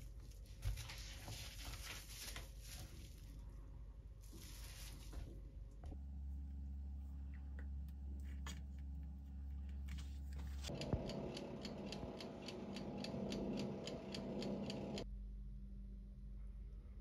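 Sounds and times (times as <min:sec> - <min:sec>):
low hum: 0:03.1 - 0:17.0
oven fan humming: 0:04.2 - 0:15.1
mechanical timer ticking: 0:10.7 - 0:15.0.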